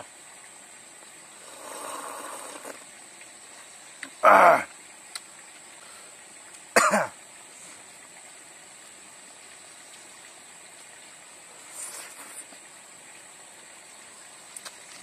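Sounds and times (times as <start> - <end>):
man coughing: 6.8 - 7.1.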